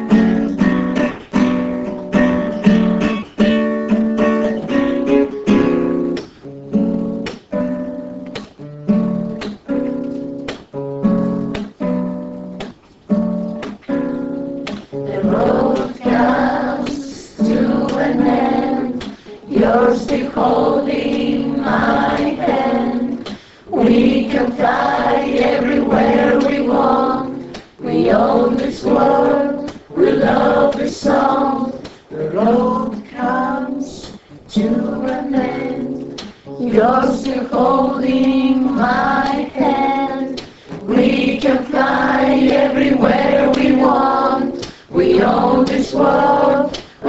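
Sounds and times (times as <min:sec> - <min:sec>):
group of voices singing: 0:15.0 - 0:47.0.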